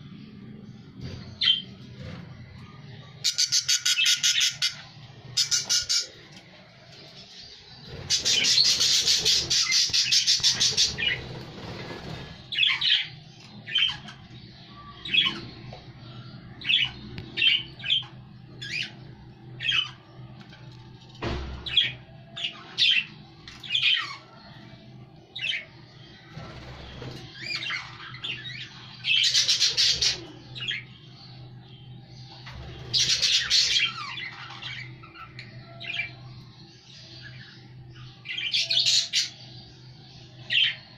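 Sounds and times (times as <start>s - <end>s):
budgerigars chirping: 3.2s - 6.2s, 7.8s - 15.5s, 26.4s - 30.8s, 32.5s - 36.2s.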